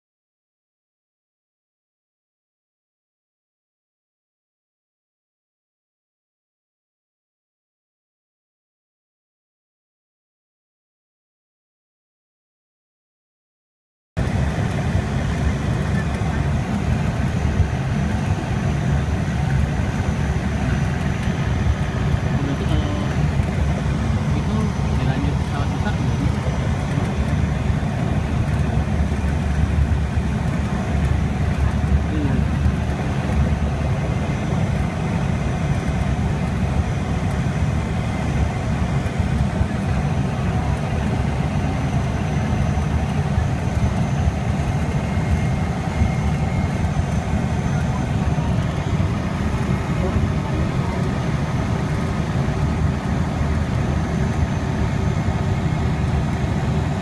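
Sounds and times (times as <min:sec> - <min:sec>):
airplane engine and propeller drone: 0:14.2 - 0:57.0
faint high whine: 0:14.2 - 0:57.0.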